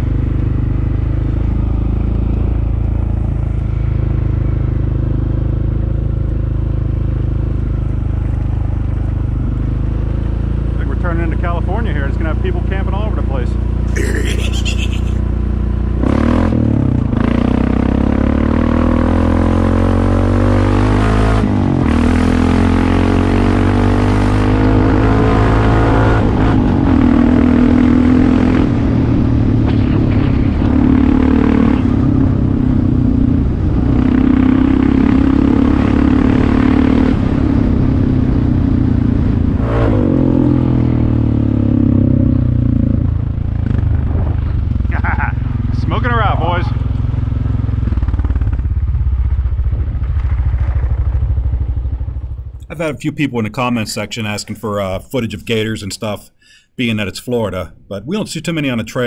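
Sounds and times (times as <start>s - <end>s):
atv engine revving: 16.0s - 28.9s, 30.7s - 49.0s.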